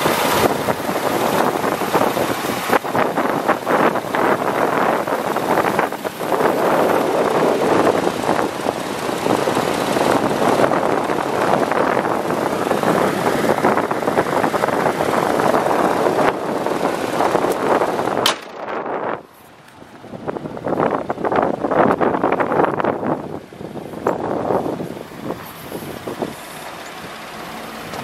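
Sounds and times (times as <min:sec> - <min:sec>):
wind buffeting microphone: 0:00.0 - 0:28.0
sharp click: 0:18.2 - 0:18.7.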